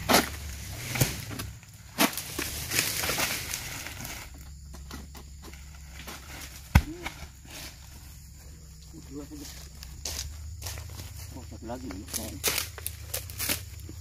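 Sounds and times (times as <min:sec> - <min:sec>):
fronds rustling: 0:00.0 - 0:14.0
heavy thud of fruit dropping: 0:06.6 - 0:07.2.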